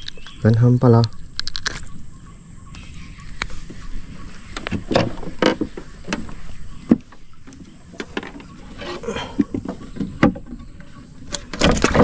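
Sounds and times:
knocks and clatter of fishing gear: 0:04.6 - 0:12.0.

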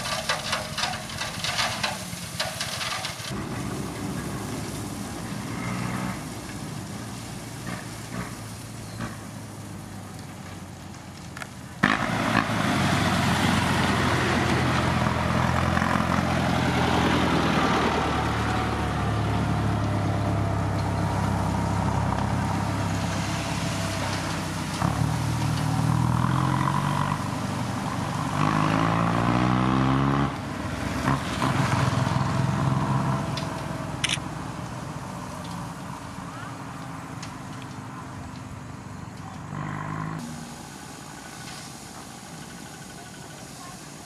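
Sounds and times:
diesel truck engine revving: 0:00.0 - 0:10.0, 0:11.8 - 0:41.4.

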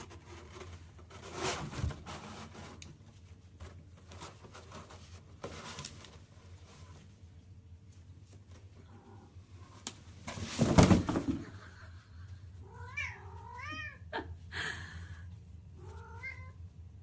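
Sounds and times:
thump and rustle: 0:10.2 - 0:11.5
cat meowing: 0:12.6 - 0:14.0, 0:15.8 - 0:16.6.

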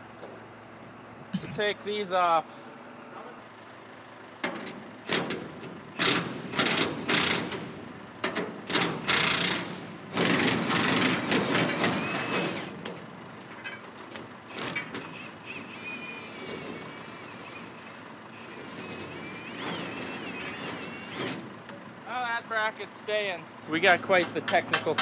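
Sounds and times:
impact wrench bursts: 0:05.1 - 0:07.7, 0:08.7 - 0:12.7, 0:14.5 - 0:21.4.

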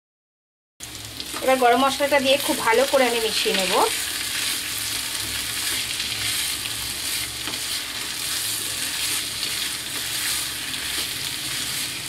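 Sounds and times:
food sizzling: 0:00.8 - 0:12.0
spatula scraping a pan: 0:03.9 - 0:12.0.

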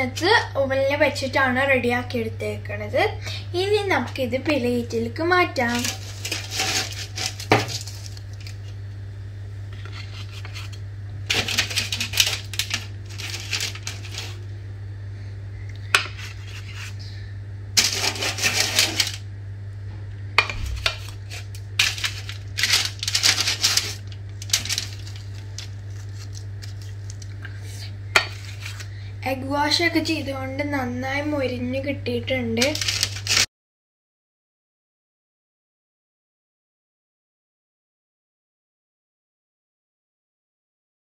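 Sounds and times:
steady low hum: 0:00.0 - 0:33.5
spatula scraping aluminium foil: 0:05.6 - 0:08.6, 0:09.8 - 0:14.4, 0:16.0 - 0:17.0, 0:17.8 - 0:19.2, 0:20.6 - 0:27.3, 0:28.2 - 0:28.9, 0:32.6 - 0:33.5.

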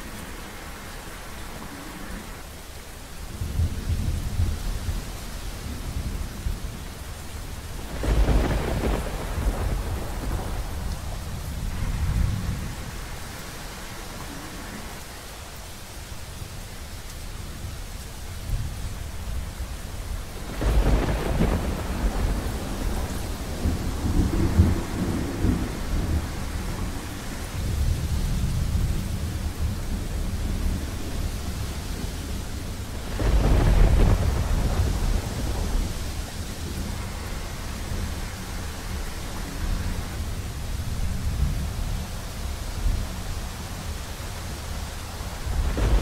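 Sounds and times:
steady rain: 0:00.0 - 0:46.0
low rolling thunder rumble: 0:03.2 - 0:15.2, 0:17.4 - 0:46.0
thunder claps: 0:07.8 - 0:13.0, 0:20.4 - 0:27.1, 0:32.6 - 0:39.0, 0:45.2 - 0:46.0.

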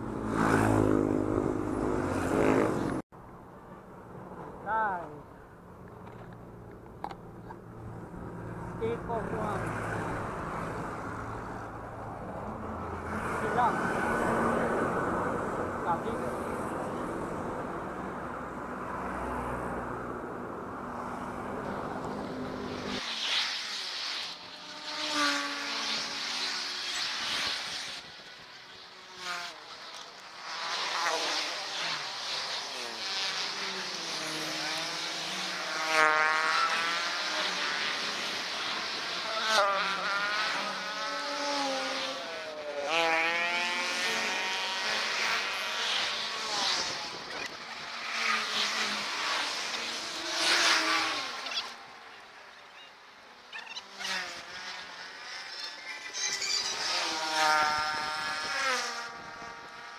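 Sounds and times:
vehicles passing by: 0:00.0 - 0:59.9
wind and road noise: 0:00.0 - 0:59.9.

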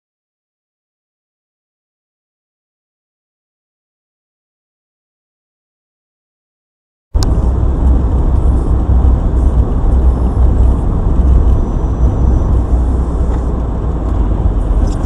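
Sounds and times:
car engine and tyre rumble: 0:07.2 - 0:15.0.

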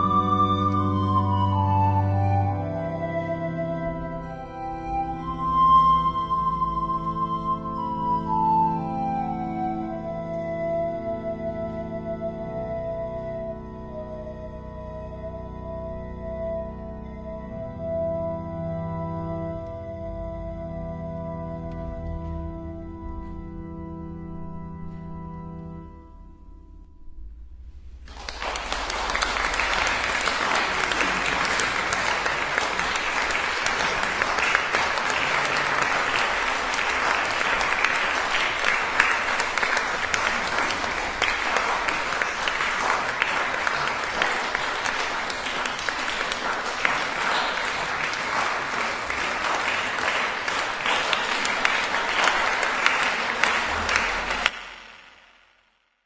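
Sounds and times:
audience applauding: 0:00.0 - 0:10.9, 0:28.0 - 0:55.3.

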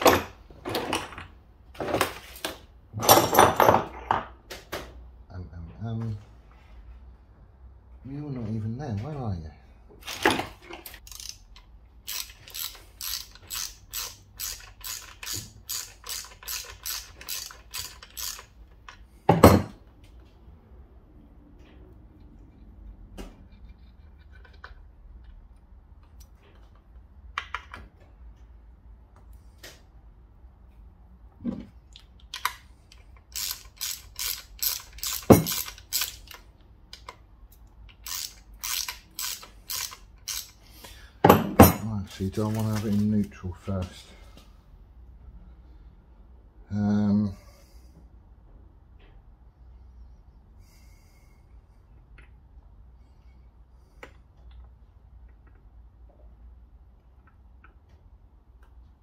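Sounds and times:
socket ratchet clicking: 0:11.0 - 0:19.0, 0:32.2 - 0:40.6.

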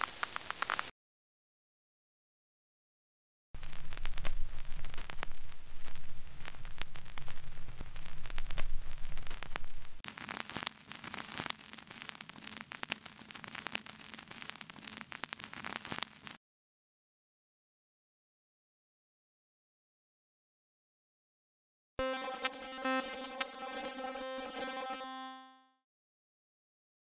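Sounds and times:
dense vinyl crackle: 0:00.0 - 0:00.9, 0:03.6 - 0:16.4
surface hiss with clicks and pops: 0:00.0 - 0:00.9, 0:03.6 - 0:16.4, 0:22.2 - 0:25.0
low hum: 0:03.6 - 0:10.0.

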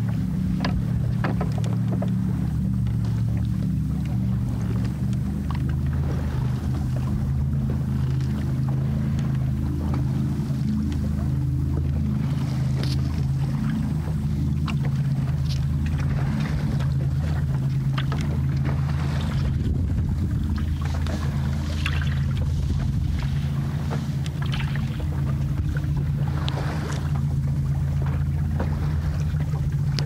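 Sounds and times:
low hum: 0:00.0 - 0:30.0
water splashing against hull: 0:00.0 - 0:30.0.

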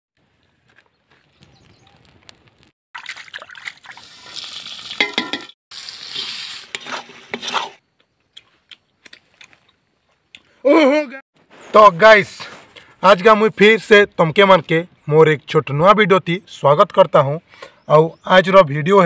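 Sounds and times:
chillies sizzling in hot oil: 0:04.0 - 0:07.8
metal ladle scraping a wok: 0:05.0 - 0:07.8.

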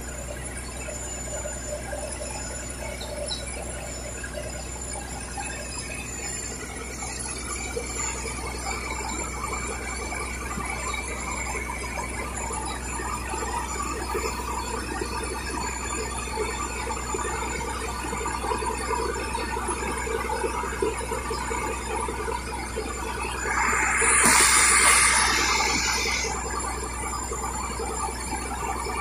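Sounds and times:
steady low hum: 0:23.3 - 0:26.9.

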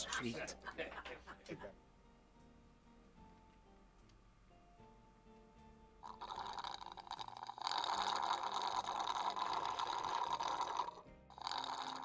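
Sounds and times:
slurping through a drinking straw: 0:06.0 - 0:12.0.

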